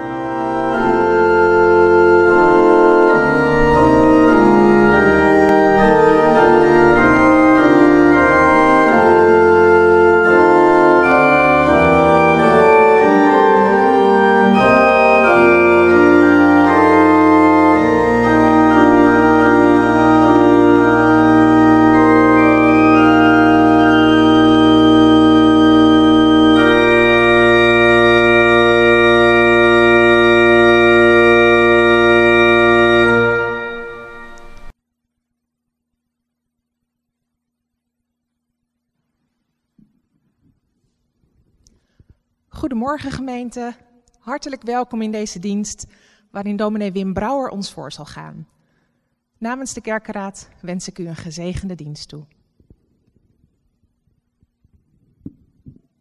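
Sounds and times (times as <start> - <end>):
organ music: 0.0 - 34.8.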